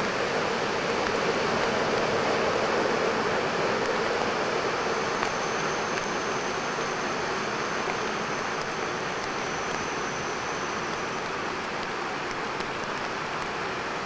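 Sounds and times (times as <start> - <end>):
faint high whine: 0.0 - 14.0.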